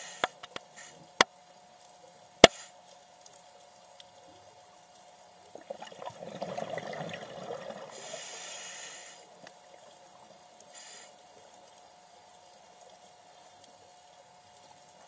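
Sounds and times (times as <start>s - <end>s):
regulator inhalation hiss: 0.0s - 1.2s, 7.9s - 9.4s, 10.7s - 11.2s
faint steady hum: 0.0s - 15.0s
exhaled bubbles crackling: 5.4s - 8.5s.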